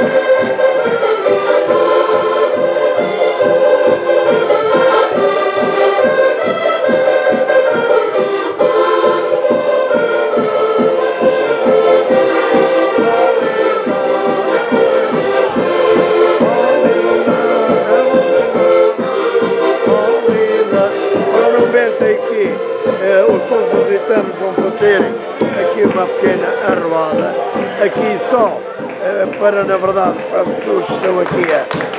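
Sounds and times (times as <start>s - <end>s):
button accordions playing folk tune: 0.0s - 31.9s
bass drum beat: 8.6s - 31.9s.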